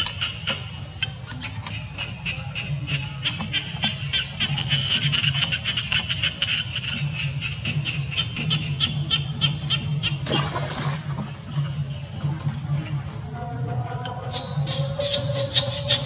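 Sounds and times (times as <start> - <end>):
low pulsing hum: 0.8 - 16.0
splash into shallow water: 10.2 - 11.4.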